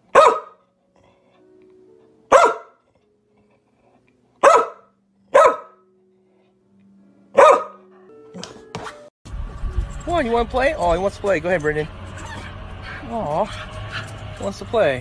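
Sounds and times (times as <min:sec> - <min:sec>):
dog barking: 0:00.1 - 0:00.6, 0:02.3 - 0:02.8, 0:04.4 - 0:05.8, 0:07.3 - 0:07.9.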